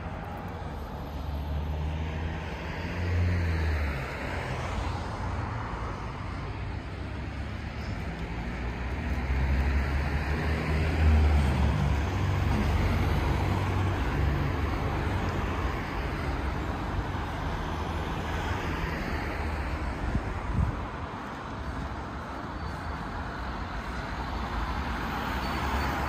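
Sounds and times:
steady road noise: 0.0s - 26.0s
vehicle passing by: 1.2s - 6.3s, 7.4s - 19.9s.

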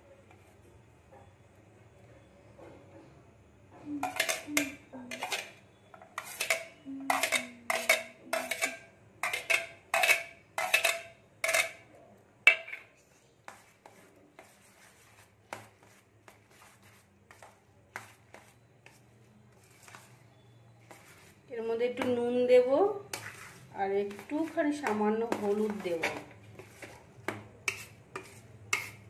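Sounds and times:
spoon clinking on steel plate: 4.0s - 5.6s, 6.2s - 11.9s.

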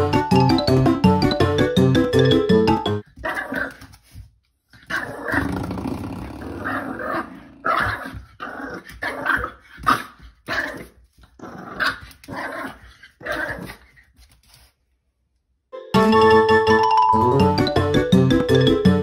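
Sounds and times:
puppy growly barks: 6.5s - 13.8s.

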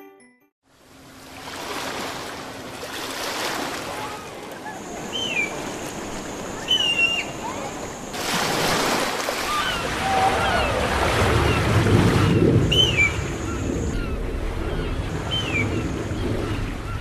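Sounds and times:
wind: 0.6s - 17.0s
surf: 1.2s - 17.0s.

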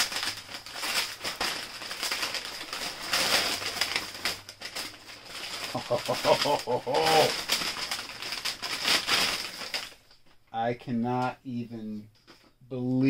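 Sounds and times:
paper crinkling and rustling: 0.0s - 10.4s.

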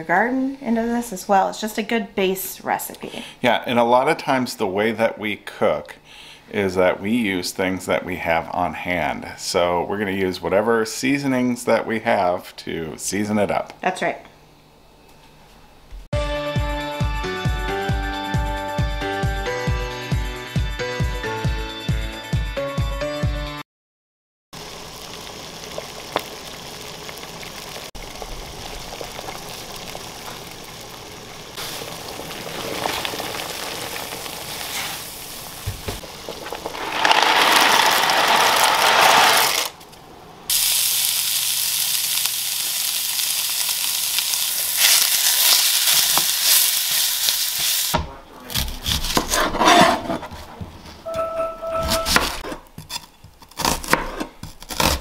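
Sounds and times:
water boiling hard in a pot: 24.6s - 39.7s
short beep: 51.1s - 52.2s.

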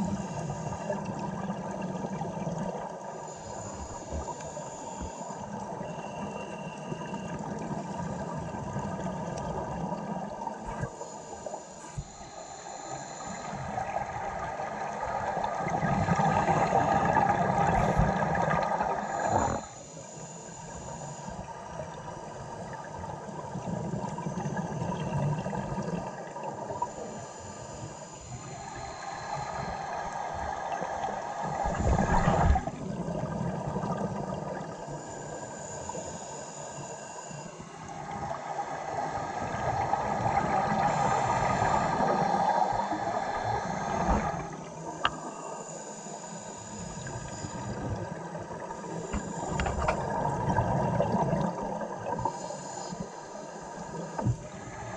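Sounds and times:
exhaled bubbles rushing: 31.5s - 34.8s, 47.8s - 52.3s
regulator hissing inhale: 52.2s - 54.9s.

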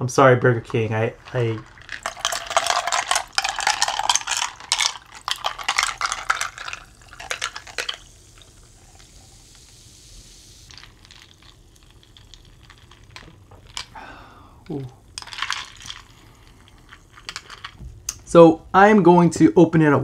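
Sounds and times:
carbonation hissing: 0.0s - 18.4s
soda pouring and fizzing: 0.2s - 17.8s.

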